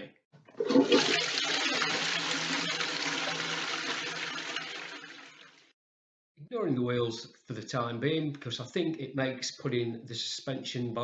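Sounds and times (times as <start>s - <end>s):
toilet flushing: 0.4s - 5.7s.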